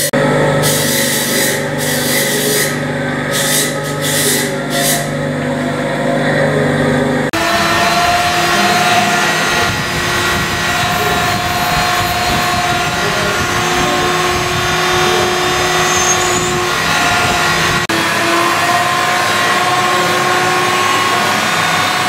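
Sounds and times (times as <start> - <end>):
laser marking machine hum: 0.0 - 22.0
electric rotary tool whining: 7.3 - 22.0.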